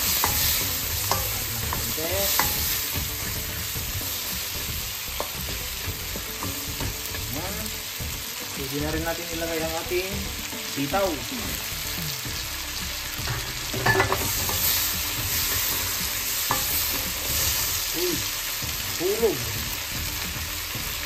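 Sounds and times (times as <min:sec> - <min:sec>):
spatula knocking: 0:00.0 - 0:07.4, 0:13.3 - 0:17.6
wooden spatula scraping wok: 0:00.0 - 0:08.1
vegetables sizzling in oil: 0:00.0 - 0:21.0.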